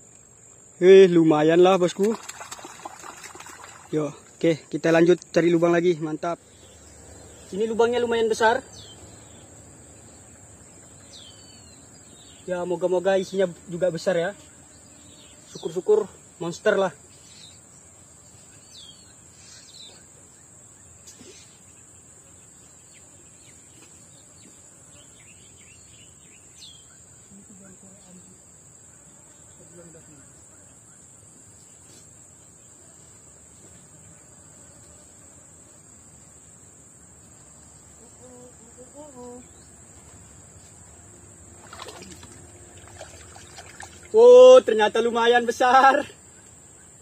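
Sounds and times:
bird chirps: 6.4s - 12.5s
high-pitched insect drone: 35.7s - 47.0s.

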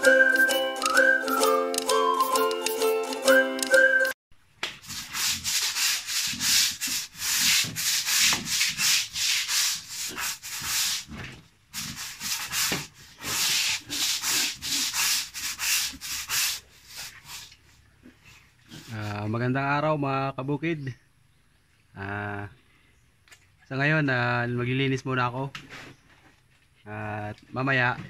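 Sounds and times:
scrubbing strokes on floor: 4.8s - 17.8s.

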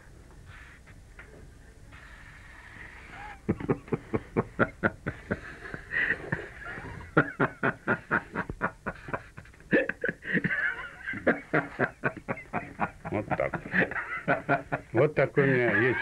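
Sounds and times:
man laughing: 3.4s - 16.0s.

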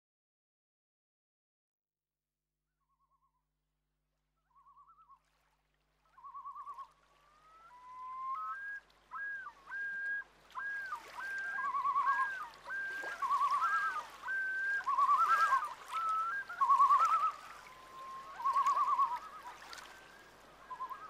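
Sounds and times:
whistle-like warbling tones: 7.7s - 19.8s, 20.7s - 21.0s.

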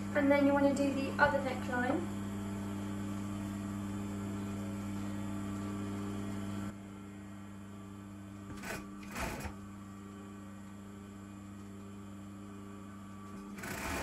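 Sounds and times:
sewing machine motor humming: 8.4s - 9.6s, 10.9s - 14.0s
sewing machine stitching bursts: 8.6s - 9.6s, 13.5s - 14.0s.

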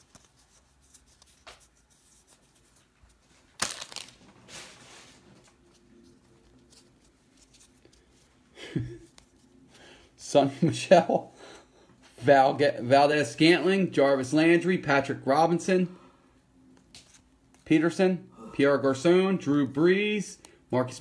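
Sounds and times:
wrapper crinkling: 0.0s - 8.1s
foil pack ripping: 3.6s - 4.8s.

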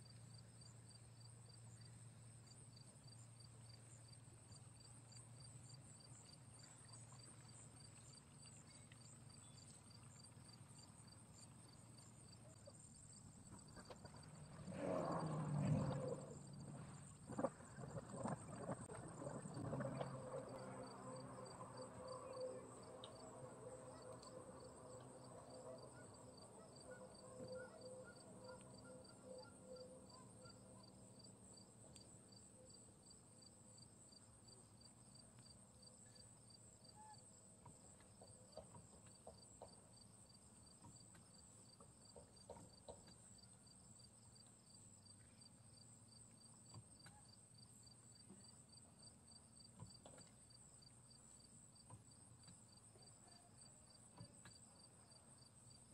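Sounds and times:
insects chirping: 0.4s - 55.9s
faint pitched hum: 15.3s - 35.0s.

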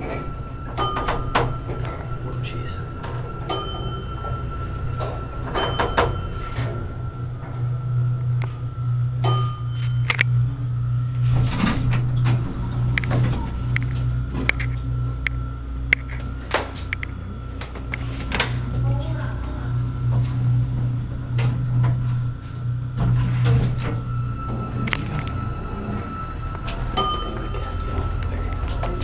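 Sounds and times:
elevator low hum: 0.0s - 29.0s
electronic chime ding: 0.8s - 1.7s, 3.4s - 4.8s, 5.6s - 6.8s, 9.2s - 10.1s, 27.0s - 28.2s.

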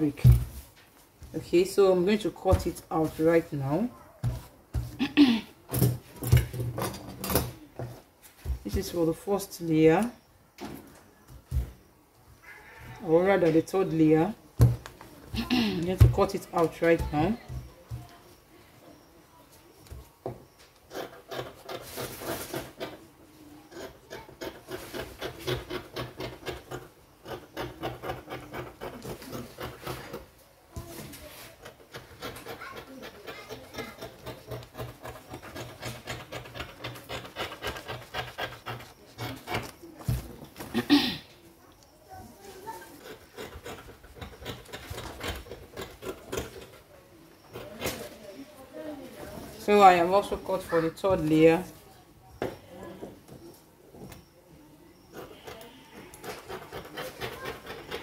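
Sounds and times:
scissors cutting stiff paper: 55.2s - 58.0s.

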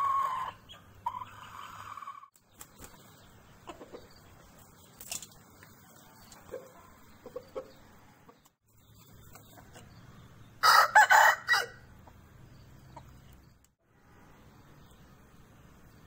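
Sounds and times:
soft clucks: 3.6s - 4.3s, 6.2s - 10.0s, 12.8s - 13.4s
rooster crowing: 10.6s - 11.8s.

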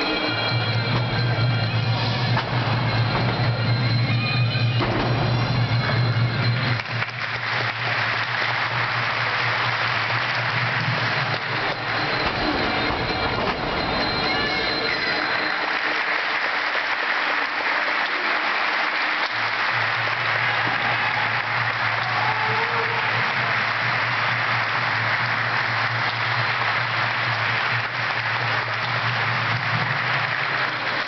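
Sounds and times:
crowd applauding: 0.0s - 31.0s.

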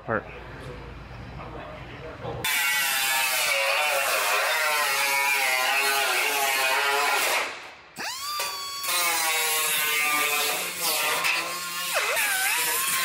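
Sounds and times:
air cut-off tool whining: 8.0s - 9.9s.

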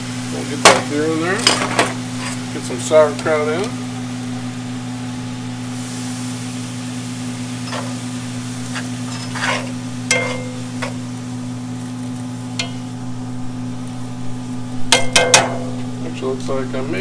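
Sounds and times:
liquid sizzling: 0.0s - 17.0s
steady low hum: 0.0s - 17.0s
metal tongs clinking on pan: 7.6s - 8.0s, 8.7s - 11.0s, 12.5s - 13.0s.

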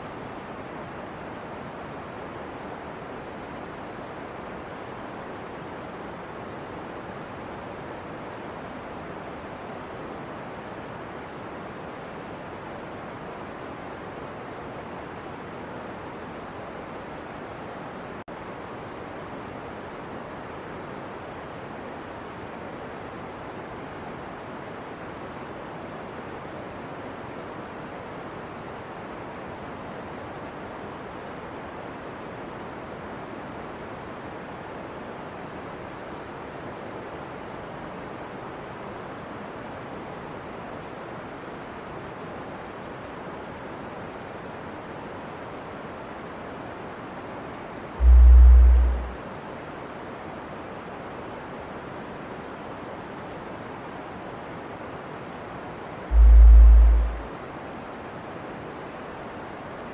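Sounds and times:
steady rushing noise: 48.0s - 49.4s, 56.1s - 57.5s.

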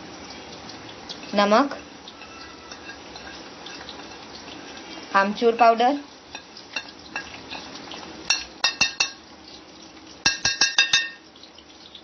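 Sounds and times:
steel spoon clinking on bowl: 2.2s - 4.2s, 8.3s - 9.2s, 10.3s - 11.2s.

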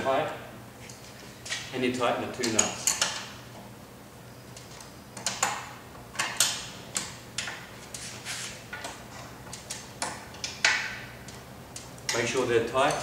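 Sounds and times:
wrench clicking on metal nuts: 9.6s - 13.0s.

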